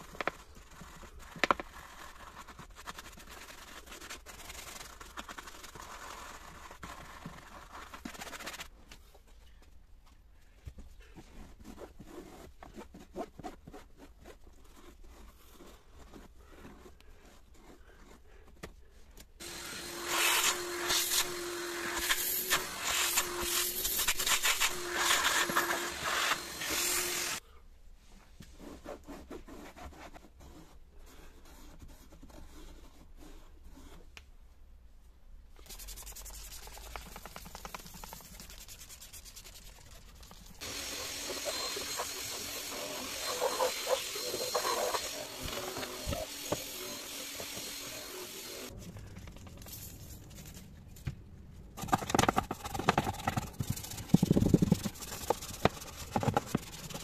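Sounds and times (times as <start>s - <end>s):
cloth and brush rubbing plastic: 0.0s - 9.4s, 11.0s - 18.4s, 19.4s - 27.4s, 35.6s - 48.7s, 51.8s - 57.0s.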